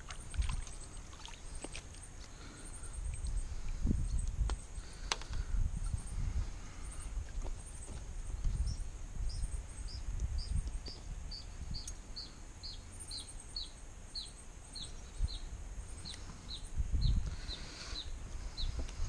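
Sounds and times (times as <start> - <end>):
bird chirping: 5.9 - 19.0.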